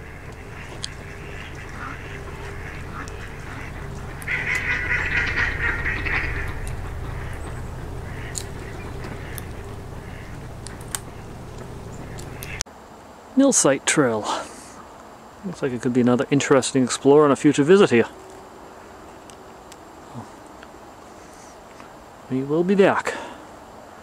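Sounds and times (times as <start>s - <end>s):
ducks quacking: 0.0s - 12.6s
low background rumble: 0.0s - 12.6s.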